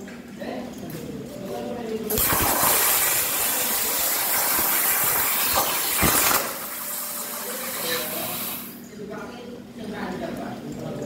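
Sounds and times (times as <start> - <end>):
crackles of plasma arc: 2.1 - 8.8
plasma cutter hissing: 2.1 - 8.8.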